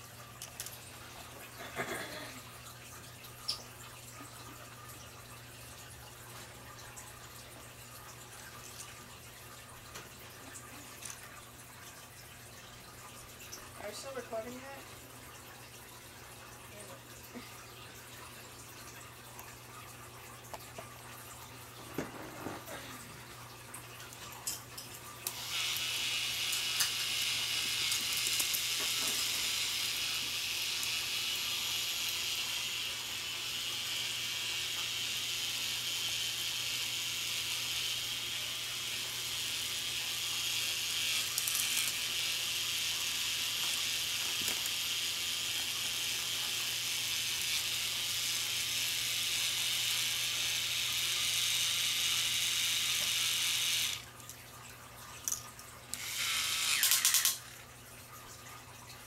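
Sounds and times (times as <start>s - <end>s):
toy motor whirring and clattering: 0.0s - 2.5s, 10.0s - 12.7s, 13.8s - 14.8s, 24.0s - 54.2s, 55.2s - 57.6s.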